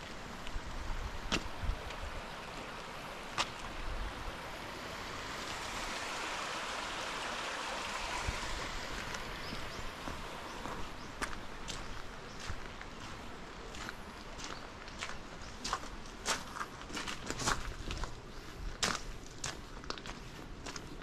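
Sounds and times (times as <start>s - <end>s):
water rushing in a channel: 0.0s - 17.8s
footsteps on a path: 8.8s - 21.0s.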